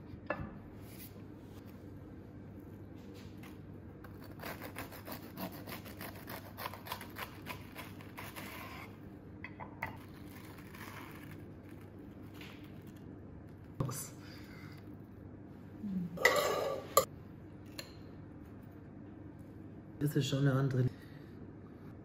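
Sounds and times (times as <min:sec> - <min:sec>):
knife sawing through crisp crust: 0:04.1 - 0:09.0.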